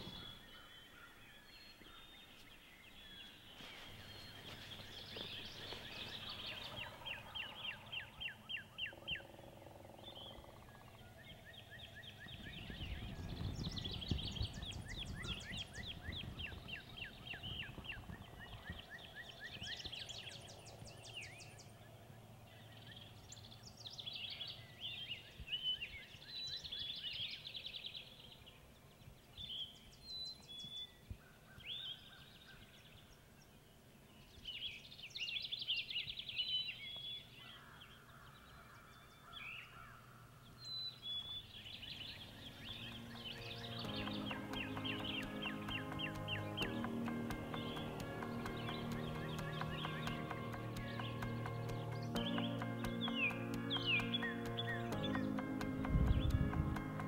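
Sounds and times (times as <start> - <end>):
birds trilling and chirping: 0.0 - 23.7, 37.2 - 57.0.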